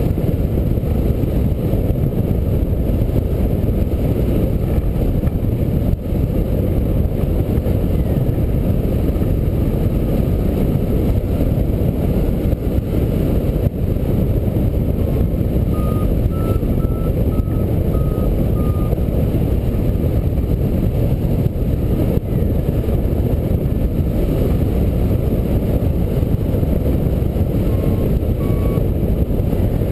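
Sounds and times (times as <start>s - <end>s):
wind rumble on microphone: 0.0s - 29.9s
variometer beeps: 15.6s - 19.1s, 27.6s - 28.9s.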